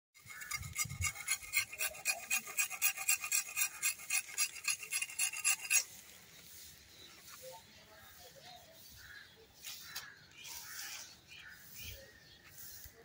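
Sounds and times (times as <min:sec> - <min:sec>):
sickle blade being sharpened: 0:00.2 - 0:06.1.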